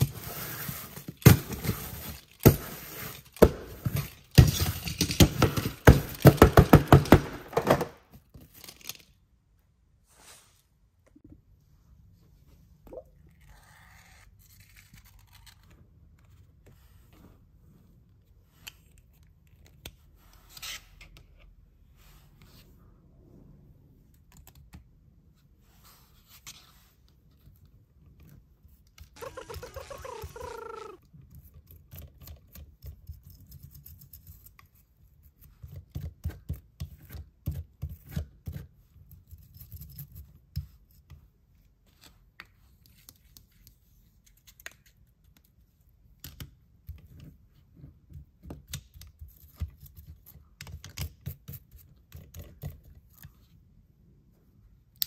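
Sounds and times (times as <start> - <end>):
toothbrush scrubbing plastic: 29.2 - 31.0
wavering pitched tone: 29.2 - 31.0.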